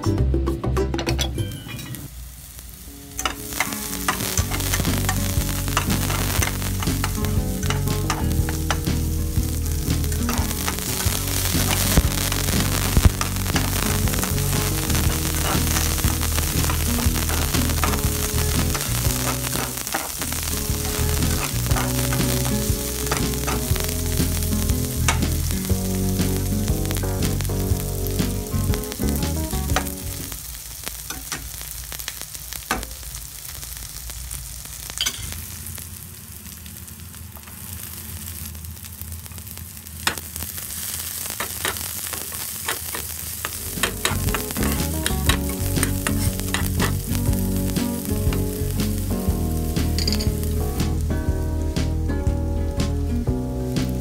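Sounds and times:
garlic and onion sizzling: 0:00.2 - 0:54.0
spatula scraping a pan: 0:41.4 - 0:47.0.

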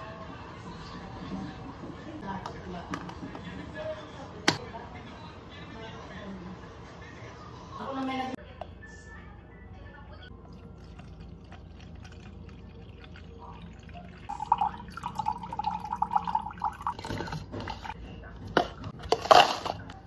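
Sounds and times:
liquid pouring into a plastic jug: 0:10.4 - 0:17.9.

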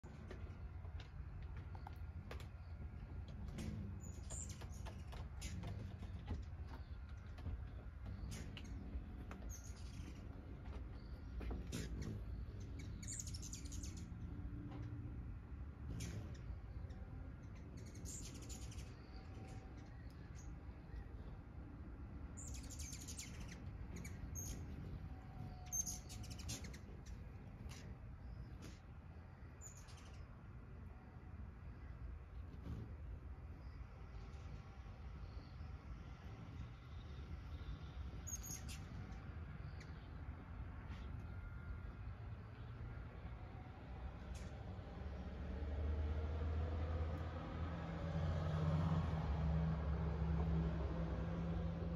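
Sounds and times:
hummingbirds chipping and chattering: 0:00.0 - 0:51.9
hummingbird chip notes: 0:22.1 - 0:28.5.

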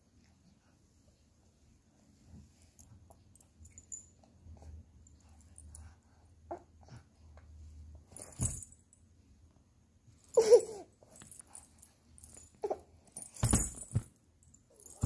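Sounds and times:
plush toy rustling and bumping: 0:08.2 - 0:08.8, 0:13.2 - 0:14.2, 0:14.8 - 0:15.0
baby whimpering: 0:10.4 - 0:10.9.

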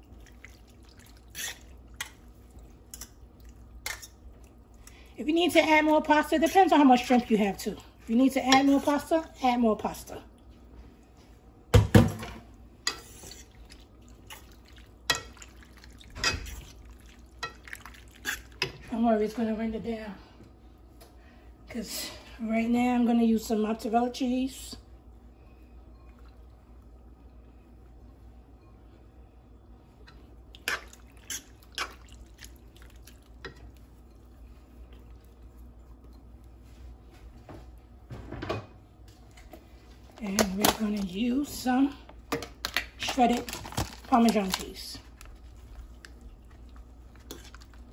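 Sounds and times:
wet stirring of pasta in sauce: 0:00.0 - 0:11.6, 0:12.4 - 0:19.0, 0:29.8 - 0:37.8, 0:39.1 - 0:47.9.

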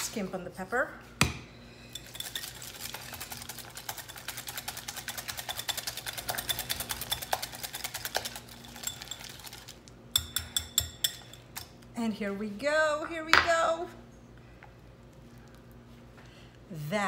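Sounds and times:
wire whisk ticking against glass: 0:10.2 - 0:11.4.

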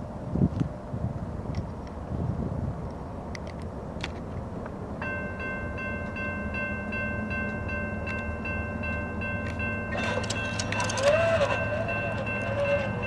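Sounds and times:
railroad crossing bell ringing: 0:05.0 - 0:13.0.

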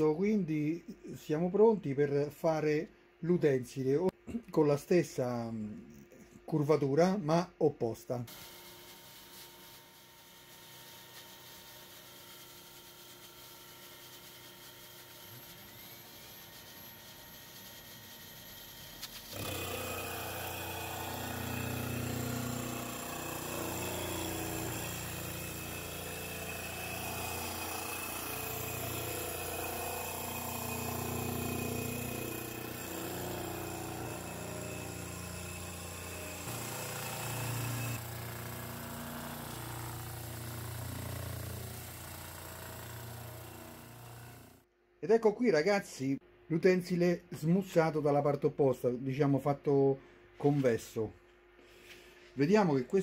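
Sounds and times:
grinding wheel grinding glass: 0:08.3 - 0:44.6.

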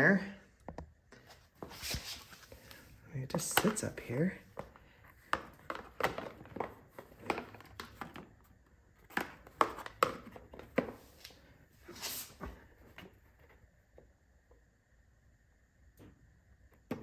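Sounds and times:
plastic cover clicks and knocks: 0:04.6 - 0:08.4, 0:09.0 - 0:10.9.

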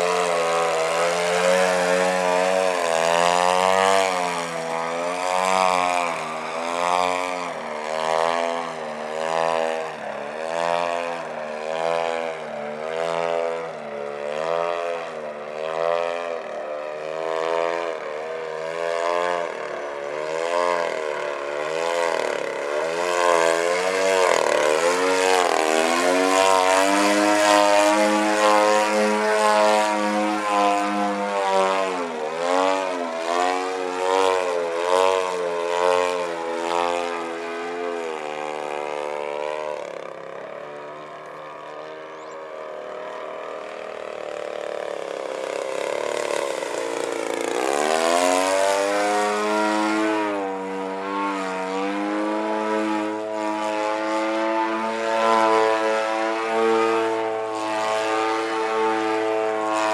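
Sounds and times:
model plane engine and propeller: 0:00.0 - 0:59.9.

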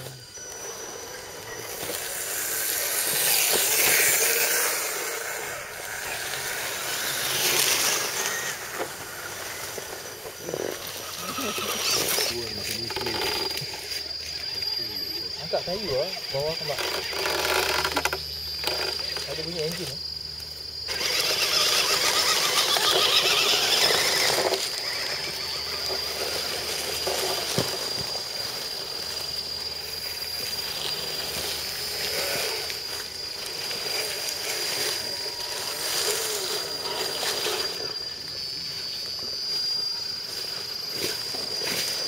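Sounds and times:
electric drivetrains whirring: 0:00.0 - 0:42.0
steady high-pitched squeal: 0:00.0 - 0:42.0
tyres crunching leaves: 0:00.0 - 0:42.0.

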